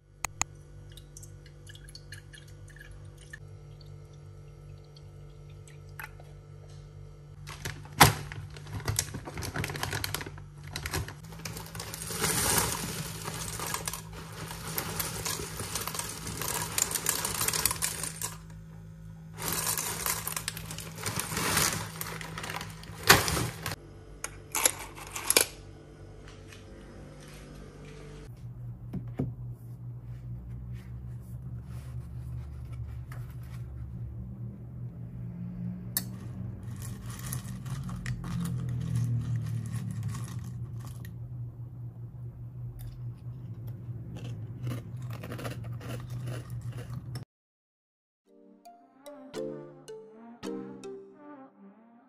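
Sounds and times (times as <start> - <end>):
cereal poured into glass jar: 11.3 - 18.4, 19.4 - 23.5, 36.6 - 41.1.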